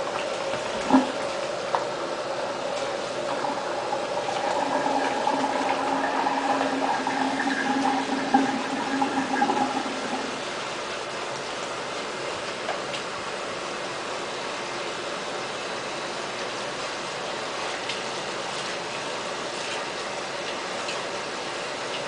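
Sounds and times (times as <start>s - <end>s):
faucet water splashing: 0.0s - 11.8s
steady hum: 0.0s - 21.8s.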